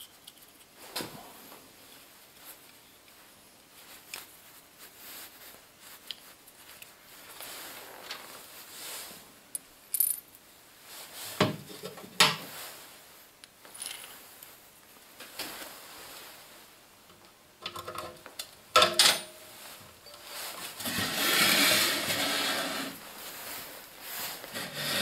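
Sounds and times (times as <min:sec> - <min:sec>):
steel parts clicking and clinking: 0:18.8 - 0:19.4.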